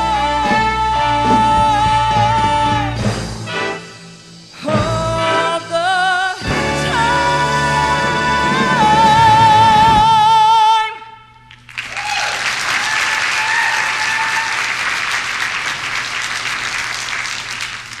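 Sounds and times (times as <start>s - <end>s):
woman singing with vibrato: 0.0s - 3.0s, 4.6s - 11.2s
backing track music: 0.0s - 10.8s
audience applause and cheering: 11.6s - 18.0s.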